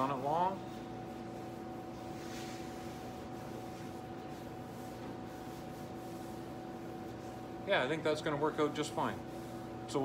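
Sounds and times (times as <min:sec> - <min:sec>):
hand swishing over sheet metal: 0:00.0 - 0:07.6
steady electrical hum: 0:00.0 - 0:10.0.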